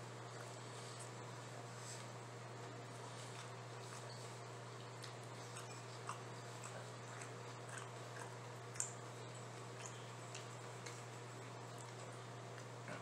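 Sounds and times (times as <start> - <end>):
steady low hum: 0.0 - 13.0
person chewing food: 3.0 - 13.0.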